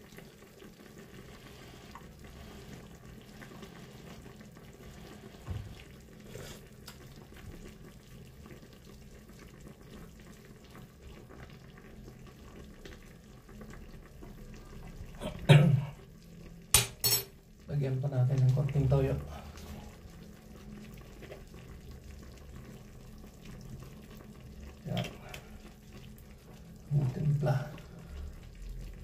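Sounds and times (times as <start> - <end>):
pot bubbling on stove: 0.0 - 29.0.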